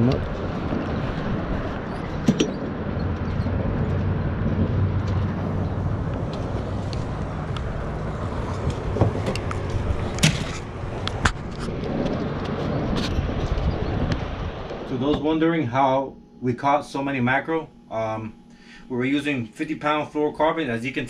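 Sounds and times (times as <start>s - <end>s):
wind rumble on microphone: 0.0s - 15.4s.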